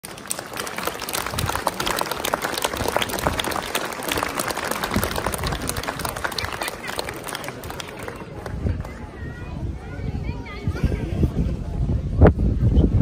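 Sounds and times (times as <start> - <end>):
crowd applauding: 0.0 - 9.3.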